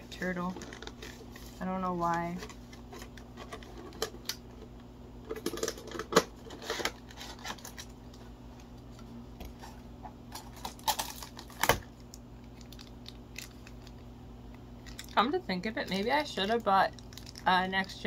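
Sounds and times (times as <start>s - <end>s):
packaging clicks and rustles: 9.5s - 14.0s, 15.9s - 17.5s.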